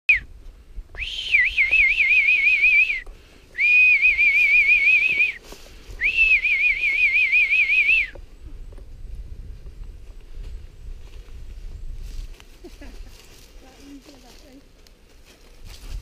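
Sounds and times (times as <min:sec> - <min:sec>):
person whistling warbling calls: 0:01.0 - 0:03.0, 0:03.6 - 0:05.4, 0:06.0 - 0:08.2.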